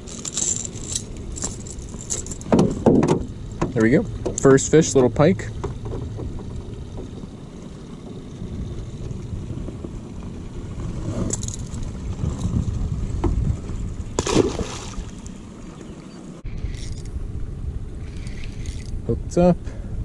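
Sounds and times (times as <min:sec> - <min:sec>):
water washing against boat: 0:00.0 - 0:16.2
outboard motor running: 0:00.0 - 0:16.4
fish splashing into water: 0:14.2 - 0:15.2.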